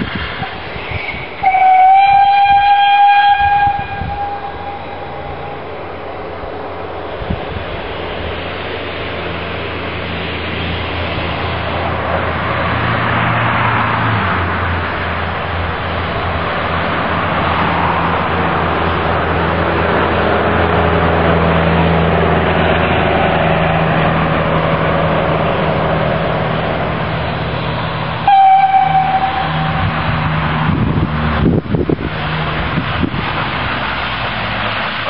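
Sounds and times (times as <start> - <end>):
steam hissing from locomotive: 0.0 - 12.4
steam whistle: 1.0 - 5.7, 28.2 - 30.0.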